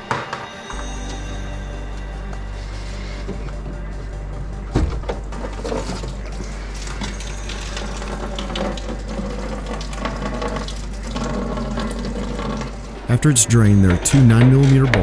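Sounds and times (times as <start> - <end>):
liquid trickling from a hose: 5.2 - 13.1.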